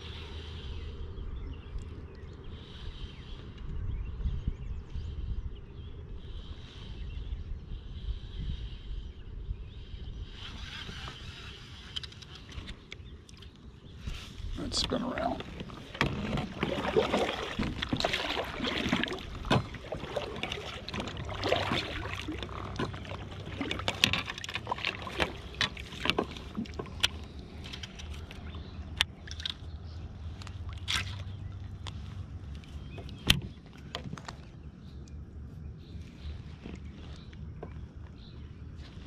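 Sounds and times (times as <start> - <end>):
water sloshing around a kayak: 10.6 - 39.0.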